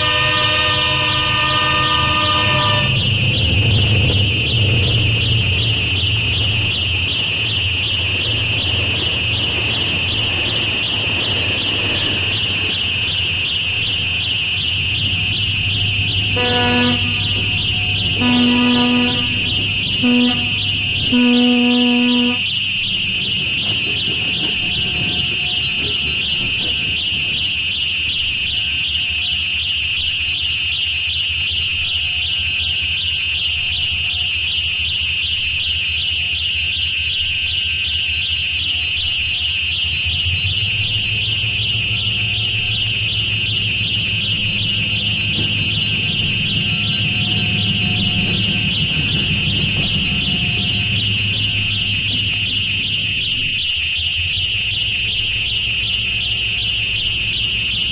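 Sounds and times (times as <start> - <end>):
high fast-pulsing tone: 40.1 - 57.9.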